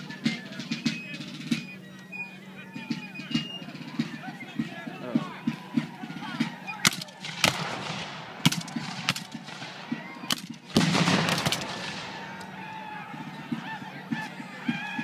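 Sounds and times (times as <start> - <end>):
musket shots: 6.8 - 12.4
loud cannon blast: 7.2 - 9.9, 10.7 - 12.3.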